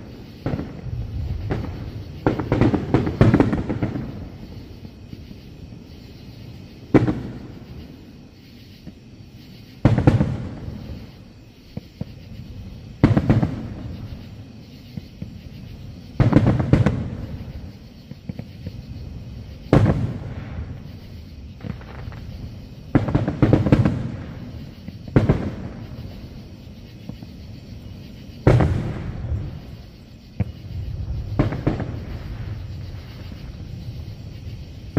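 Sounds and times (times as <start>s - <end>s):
firework shells booming: 0.0s - 5.0s, 9.8s - 11.1s, 11.7s - 15.4s, 16.1s - 26.3s, 28.4s - 33.8s.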